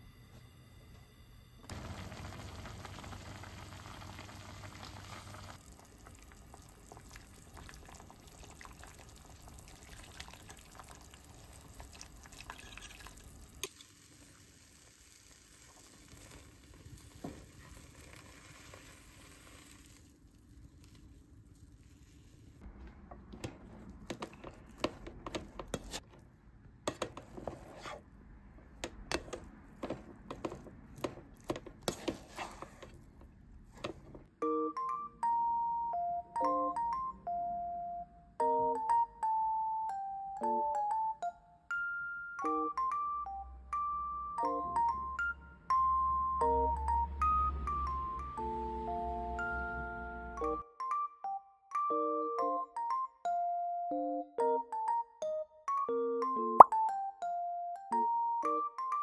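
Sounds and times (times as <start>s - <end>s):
egg frying with a light hiss: 1.7s - 22.6s
liquid in a pot of onions: 1.7s - 22.6s
rice paddle scraping a pot: 31.8s - 33.0s.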